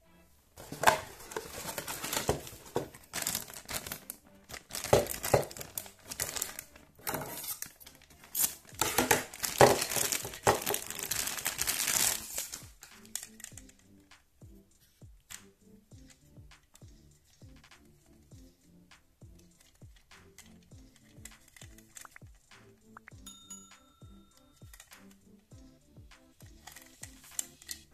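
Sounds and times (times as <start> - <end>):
plastic wrapper crinkling: 0.6 - 13.6.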